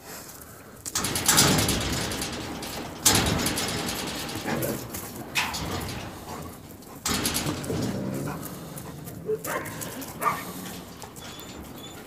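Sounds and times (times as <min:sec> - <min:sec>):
wolf low grumbling: 0:07.4 - 0:11.7
wolf whimpers: 0:09.1 - 0:12.0.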